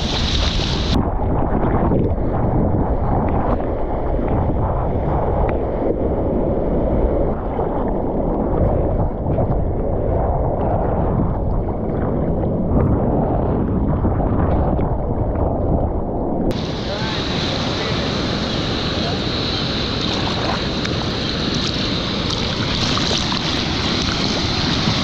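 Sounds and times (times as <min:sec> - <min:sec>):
water rushing and splashing: 0:00.0 - 0:02.5, 0:16.5 - 0:25.0
wind buffeting microphone: 0:00.0 - 0:25.0.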